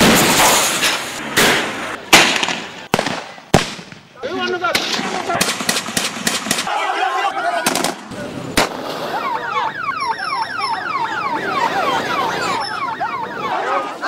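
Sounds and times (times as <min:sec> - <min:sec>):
gunshots: 0:00.0 - 0:04.1, 0:04.7 - 0:06.7, 0:07.6 - 0:09.2
electronic siren yelping: 0:09.0 - 0:14.0.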